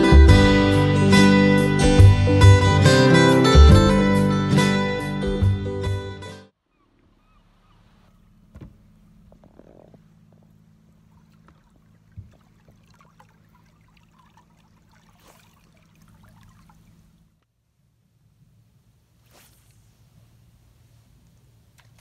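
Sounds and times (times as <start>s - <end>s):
boat motor idling hum: 6.5s - 17.6s.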